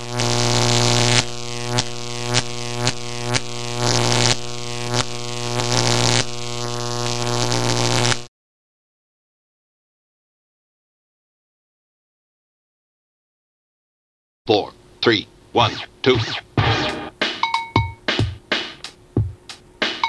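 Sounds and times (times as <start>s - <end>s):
crackling hiss: 0.0s - 8.3s
electric hum: 0.0s - 8.3s.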